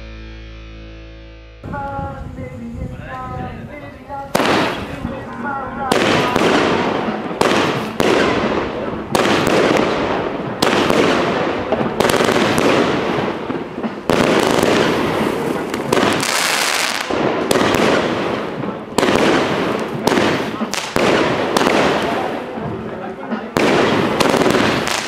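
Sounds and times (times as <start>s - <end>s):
firework bangs with hiss: 4.3s - 5.2s, 5.8s - 25.0s.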